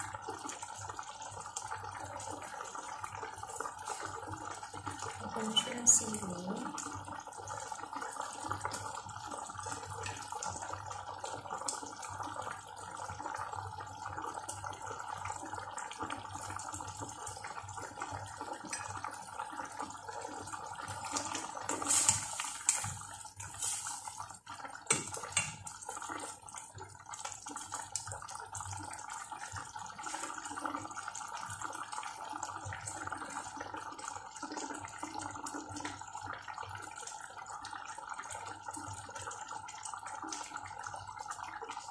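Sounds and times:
pot bubbling: 0.0s - 41.9s.

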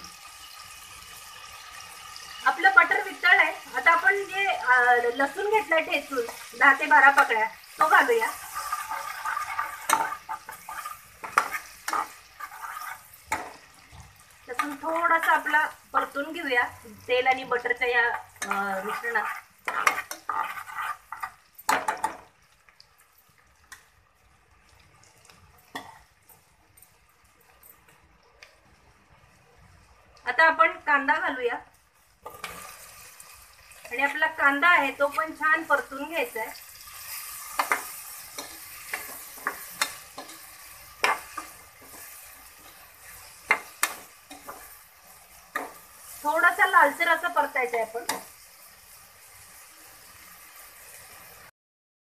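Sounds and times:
garlic sizzling in oil: 0.0s - 51.5s
spoon scraping in a pot: 5.4s - 13.6s, 18.1s - 22.2s, 32.2s - 34.2s, 36.8s - 46.2s.

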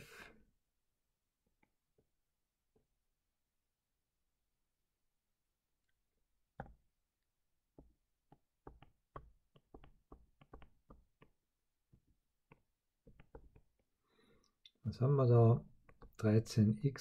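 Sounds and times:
stylus tapping touchscreen: 6.5s - 6.9s, 7.7s - 14.0s, 15.7s - 16.3s.

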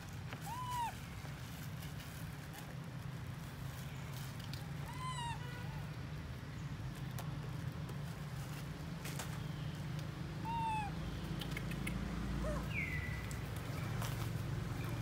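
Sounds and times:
baby monkey crying calls: 0.4s - 1.1s, 4.8s - 6.0s, 10.4s - 11.0s.

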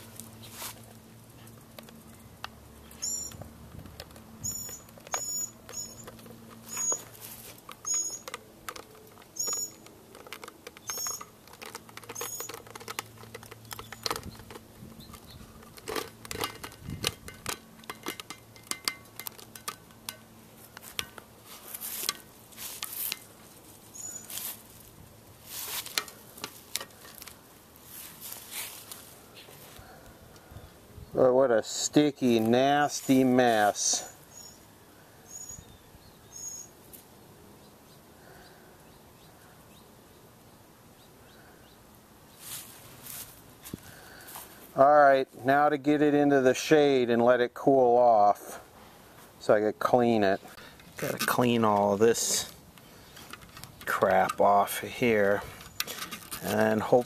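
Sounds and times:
adhesive crackling and squeaking: 0.0s - 27.4s, 50.0s - 57.0s.

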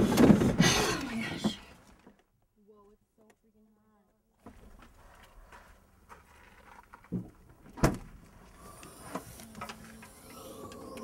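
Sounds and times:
small clicks and rustles: 4.4s - 7.6s, 8.2s - 11.0s.

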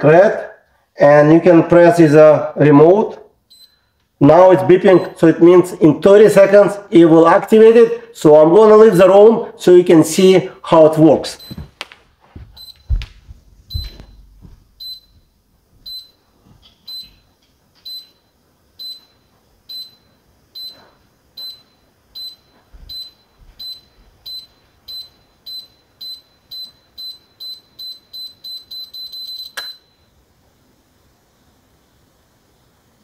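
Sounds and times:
short high warning beeps: 3.5s - 4.0s, 11.3s - 11.7s, 12.6s - 12.9s, 13.7s - 15.3s, 15.9s - 16.2s, 18.8s - 30.1s
low thuds: 11.4s - 16.6s.

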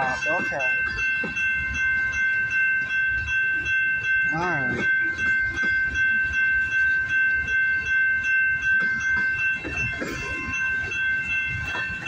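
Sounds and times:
freight train rumbling: 0.0s - 12.0s
high-pitched ringing tone: 0.0s - 12.0s
train wheel clatter: 0.0s - 12.0s.

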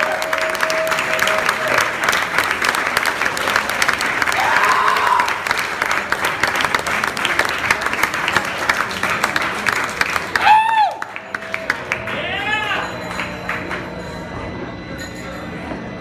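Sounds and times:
audience applauding: 0.0s - 14.3s
faint whoop: 4.4s - 5.4s, 10.4s - 11.1s.

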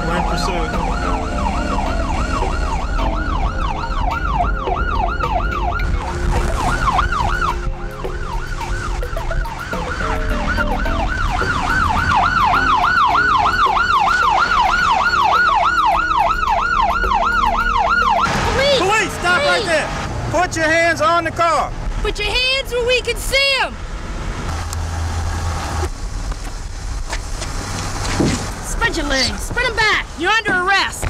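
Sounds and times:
police siren yelping: 0.0s - 19.7s
car rumbling on the road: 0.0s - 31.0s.

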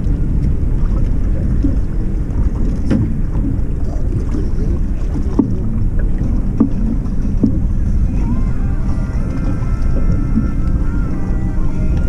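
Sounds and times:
water noise: 0.0s - 12.0s
wind rumbling on microphone: 0.0s - 12.0s
short knocks: 5.1s - 7.7s.

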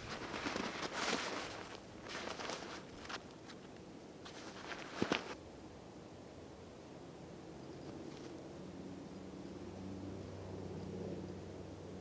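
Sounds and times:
nylon fabric rustling: 0.0s - 3.6s, 4.2s - 5.4s.

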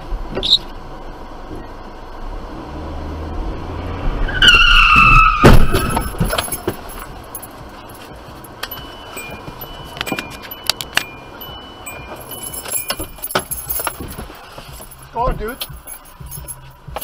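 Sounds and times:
car tyres squealing: 3.8s - 7.2s
loud thump: 5.0s - 6.9s.

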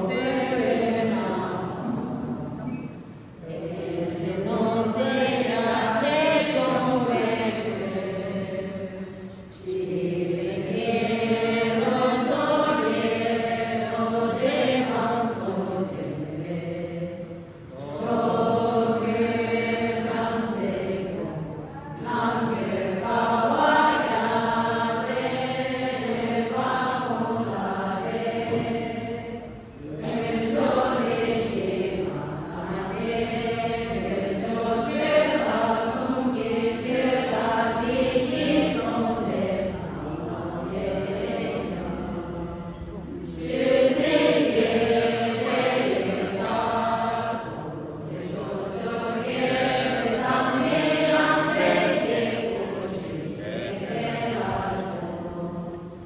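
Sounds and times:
group chanting in unison: 0.0s - 2.7s, 3.4s - 56.0s.

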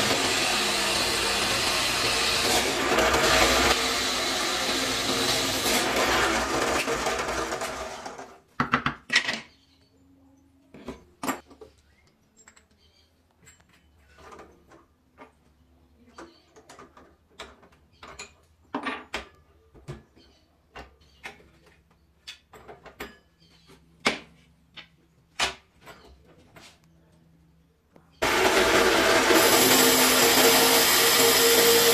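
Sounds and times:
drill press hole saw grinding wood: 0.0s - 8.4s, 28.2s - 31.9s
tools and wood clicking and knocking: 8.5s - 9.6s, 10.7s - 26.9s.

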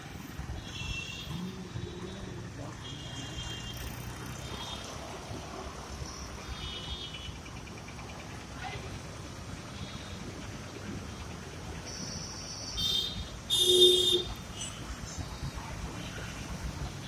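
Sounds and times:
city road traffic rumble: 0.0s - 17.0s
motorcycles passing close: 1.3s - 6.6s.

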